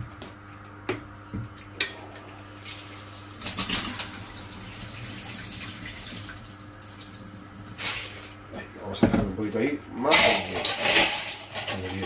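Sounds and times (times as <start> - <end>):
water pouring into a sink: 2.6 - 8.4.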